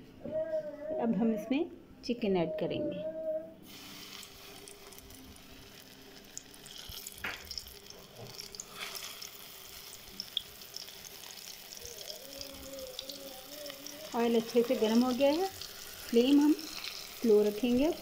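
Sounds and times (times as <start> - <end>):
chicken sizzling in frying oil: 3.7 - 18.0
oil popping and crackling: 3.7 - 18.0.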